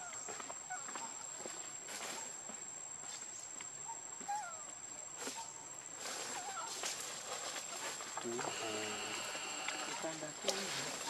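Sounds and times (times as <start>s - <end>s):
rustles: 0.0s - 11.0s
high-pitched insect drone: 5.2s - 11.0s.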